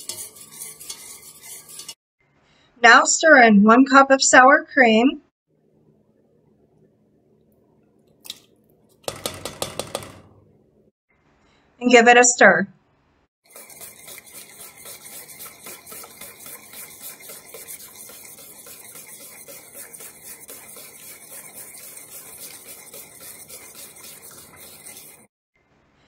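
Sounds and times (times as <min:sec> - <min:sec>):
utensil scraping metal pot: 0:00.0 - 0:02.0, 0:09.0 - 0:10.4, 0:13.4 - 0:25.3.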